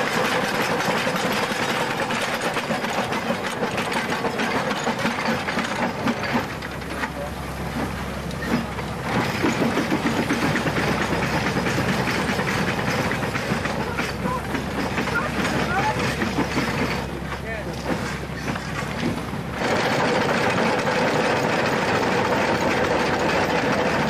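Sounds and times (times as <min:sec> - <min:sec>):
steam locomotive rattling: 0:00.0 - 0:24.0.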